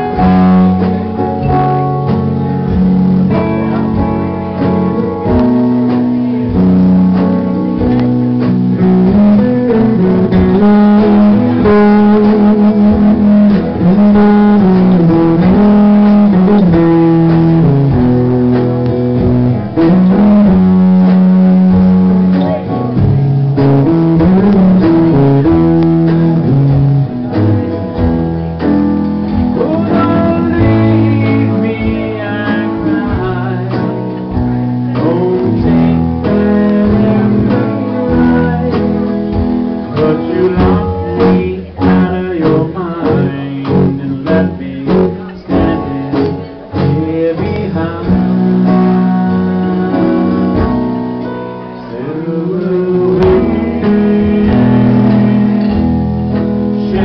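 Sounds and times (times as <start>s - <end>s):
electric guitar: 0.0s - 57.0s
man singing: 8.7s - 18.3s, 19.6s - 27.3s, 29.4s - 57.0s.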